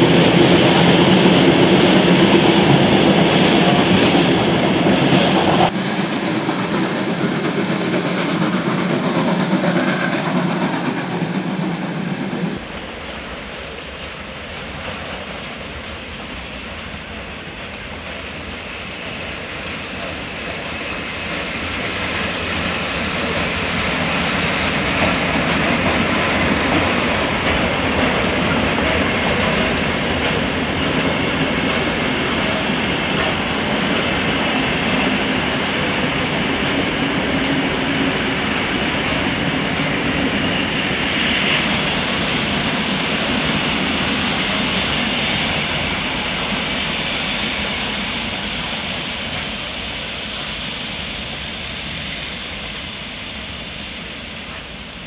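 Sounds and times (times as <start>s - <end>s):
train wheels clicking over rail joints: 0.0s - 50.0s
train rolling noise: 0.0s - 55.0s.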